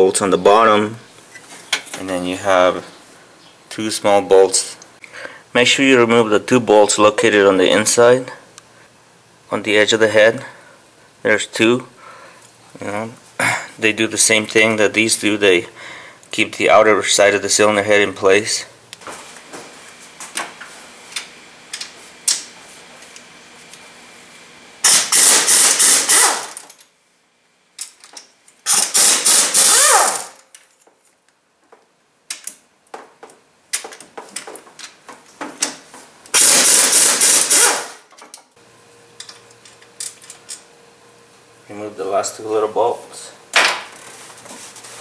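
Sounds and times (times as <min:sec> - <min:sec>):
pneumatic impact wrench hammering: 0:24.8 - 0:26.8, 0:28.6 - 0:30.4, 0:36.3 - 0:38.1.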